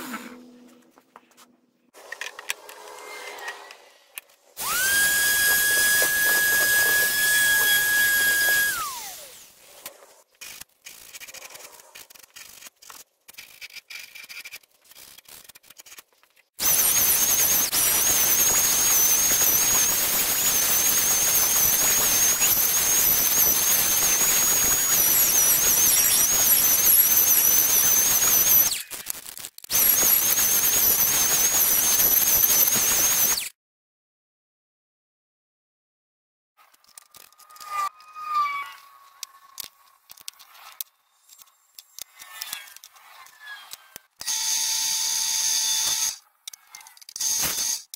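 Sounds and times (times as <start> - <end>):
orbital sander whining: 4.6 - 9.4.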